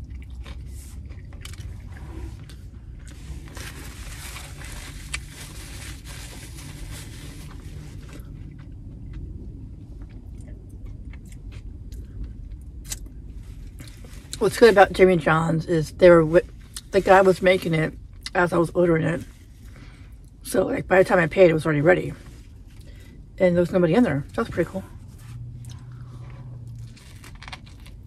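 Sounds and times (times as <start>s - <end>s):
chewing sandwich: 0.0s - 3.8s, 7.3s - 14.4s, 25.1s - 28.0s
steady low rumble: 0.0s - 28.0s.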